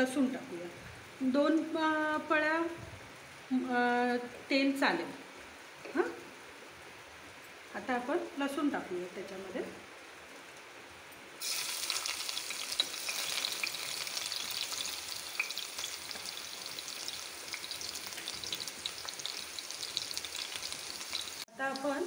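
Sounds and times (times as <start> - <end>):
garlic sizzling in hot oil: 11.4 - 22.0.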